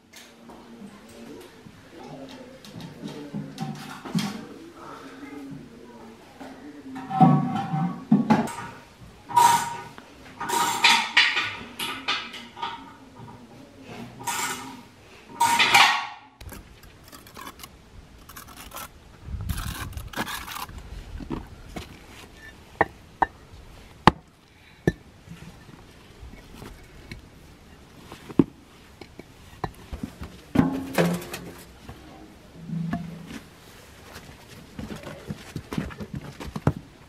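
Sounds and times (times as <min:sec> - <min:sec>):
scraping and shuffling: 0:16.4 - 0:37.0
bricks clacking together: 0:19.5 - 0:21.4.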